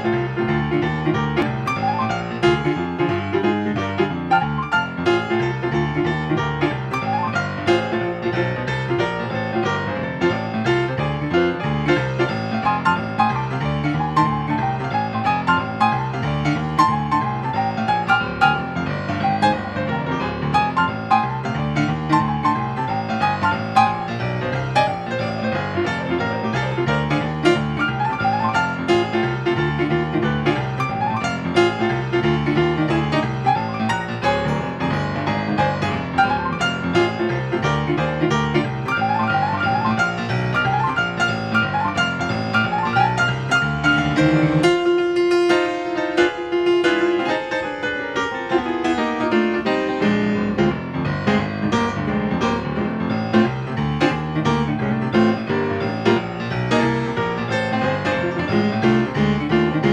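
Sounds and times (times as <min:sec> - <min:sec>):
blues piano music: 0:00.0 - 0:59.9.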